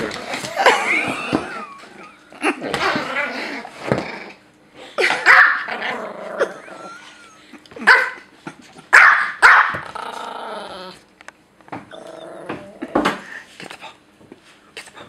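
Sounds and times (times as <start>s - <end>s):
dog growling: 2.4s - 4.4s, 5.6s - 7.2s, 9.8s - 11.0s, 11.9s - 13.1s
small dog yapping: 5.2s - 5.7s, 8.9s - 9.9s.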